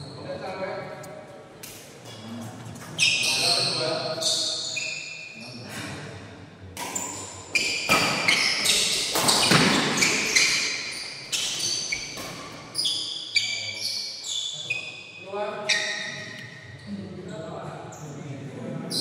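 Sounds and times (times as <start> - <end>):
shoes squeaking on court floor: 2.0 - 5.8, 6.8 - 16.9
rackets hitting shuttlecock: 7.8 - 10.8.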